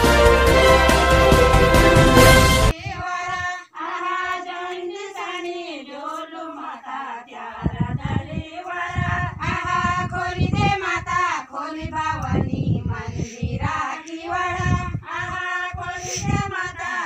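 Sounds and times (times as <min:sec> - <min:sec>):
intro jingle: 0:00.0 - 0:02.7
women singing folk song: 0:02.7 - 0:17.0.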